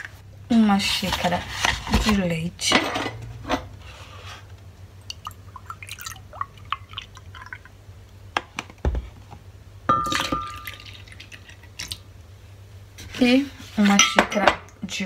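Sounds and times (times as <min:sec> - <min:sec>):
milk pouring into mug: 0:05.1 - 0:07.7, 0:10.1 - 0:12.0.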